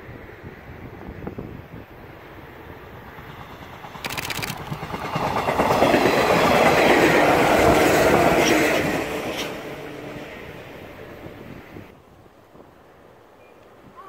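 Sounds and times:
train wheels clattering over rail joints: 0:03.6 - 0:08.4.

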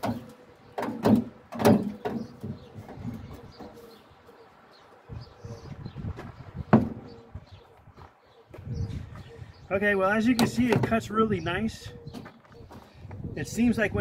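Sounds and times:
sharp metallic knocks: 0:00.0 - 0:02.6.

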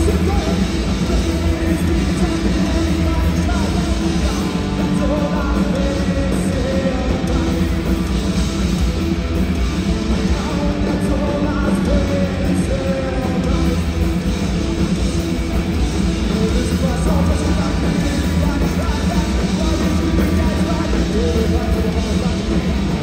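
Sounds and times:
person singing: 0:00.0 - 0:08.0, 0:10.0 - 0:13.9
punk rock band playing: 0:00.0 - 0:23.0.

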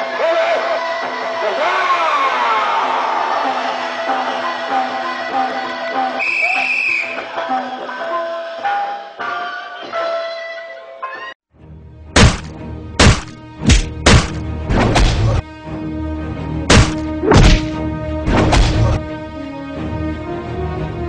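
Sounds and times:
background music: 0:00.0 - 0:21.0
strikes thudding on body: 0:12.2 - 0:15.3, 0:16.7 - 0:19.0.

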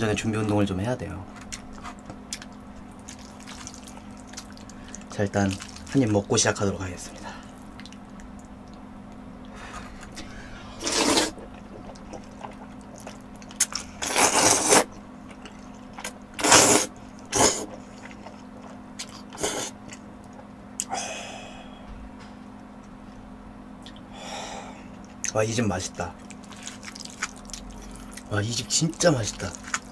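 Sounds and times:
quiet chewing: 0:07.4 - 0:14.4, 0:17.1 - 0:20.9
person slurping noodles: 0:10.2 - 0:12.6, 0:14.0 - 0:14.9, 0:16.4 - 0:17.8.

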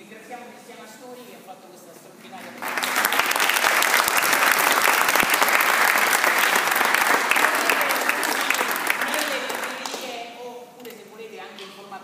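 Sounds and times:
audience applauding: 0:02.5 - 0:10.1.

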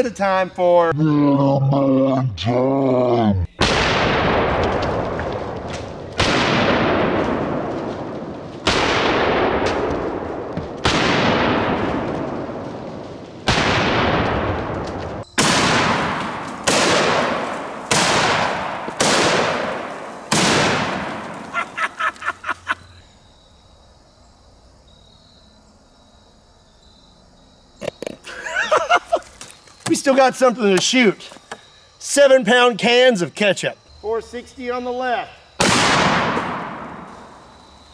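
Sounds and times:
revolver shots with long echo: 0:15.4 - 0:21.9, 0:35.6 - 0:37.2.

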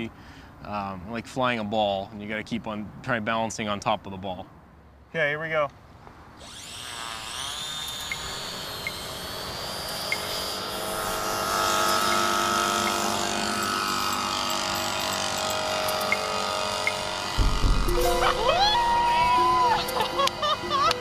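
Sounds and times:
model aircraft propeller whine: 0:06.4 - 0:21.0.

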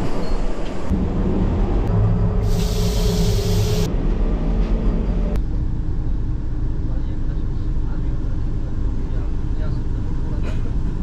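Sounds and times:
train running rumble: 0:00.6 - 0:11.0
loud hiss: 0:02.4 - 0:03.9.

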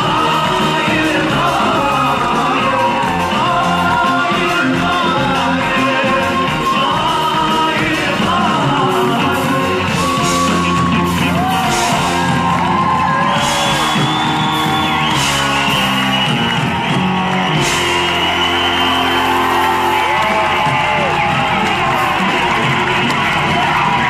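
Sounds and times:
lead singer singing: 0:00.0 - 0:14.8
live band playing: 0:00.0 - 0:24.0.

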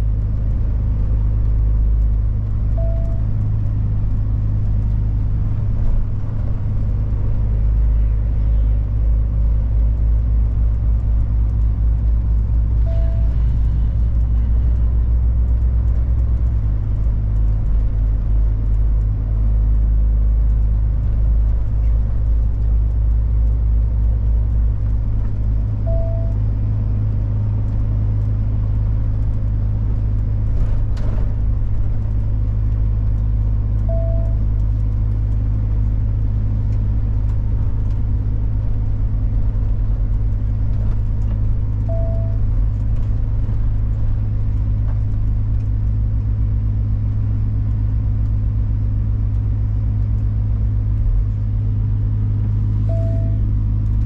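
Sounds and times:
diesel truck engine drone: 0:00.0 - 0:54.0
short beeps: 0:02.7 - 0:03.3, 0:12.8 - 0:13.5, 0:25.8 - 0:26.4, 0:33.8 - 0:34.4, 0:41.8 - 0:42.4, 0:52.8 - 0:53.5
click: 0:10.7 - 0:18.8, 0:24.8 - 0:26.4, 0:30.4 - 0:35.4, 0:40.7 - 0:46.0.

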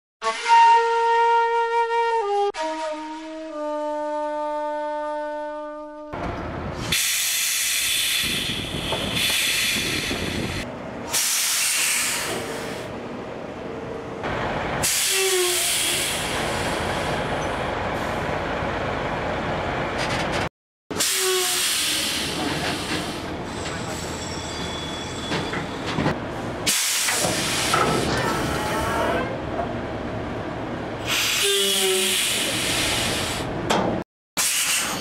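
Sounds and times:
flute melody: 0:00.2 - 0:04.4
air brakes hissing: 0:06.8 - 0:12.9, 0:14.8 - 0:18.2, 0:20.9 - 0:24.2, 0:26.6 - 0:28.8, 0:31.0 - 0:33.6, 0:34.4 - 0:35.0.

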